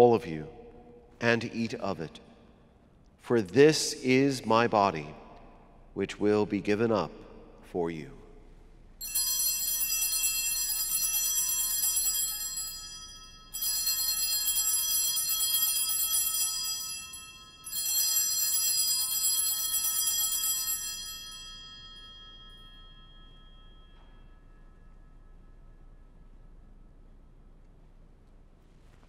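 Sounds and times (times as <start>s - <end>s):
altar bells ringing: 9.0s - 27.0s.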